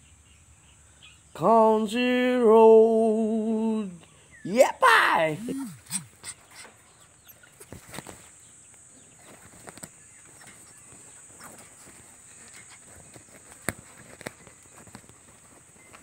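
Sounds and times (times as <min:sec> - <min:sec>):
puppy pawing at cloth: 0:09.3 - 0:16.0.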